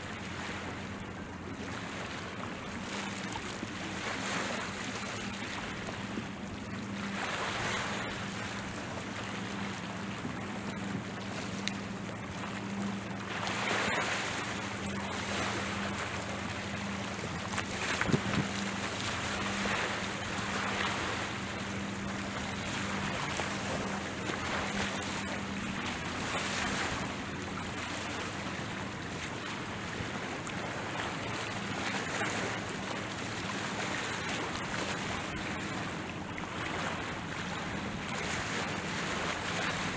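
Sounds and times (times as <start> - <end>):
distant motorboat engine drone: 0.0 - 39.9
wind buffeting microphone: 17.2 - 18.7.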